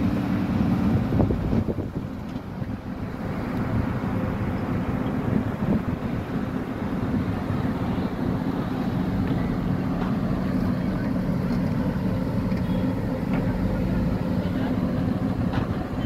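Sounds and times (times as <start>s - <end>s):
rough wind-like noise: 0.0s - 10.4s
low rumbling hum: 0.0s - 16.0s.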